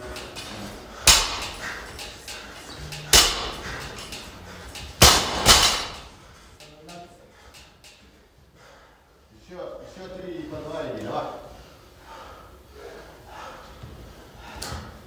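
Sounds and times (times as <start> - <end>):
barbell clanking: 0.0 - 7.0
barbell thudding on rubber floor: 5.0 - 6.1.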